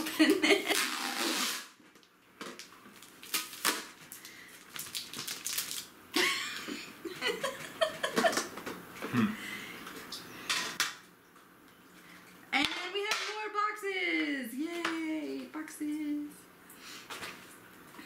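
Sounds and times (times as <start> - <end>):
packaging ripping and crinkling: 0.7 - 6.0.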